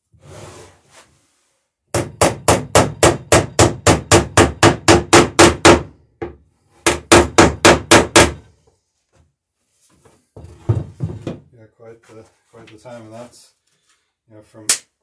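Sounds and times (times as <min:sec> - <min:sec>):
hammer striking rivets: 0:01.9 - 0:08.4.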